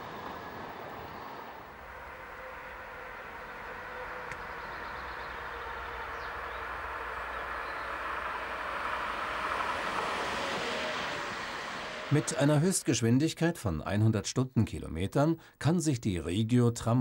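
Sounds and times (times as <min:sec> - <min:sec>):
tram rolling on track: 0:00.0 - 0:12.8.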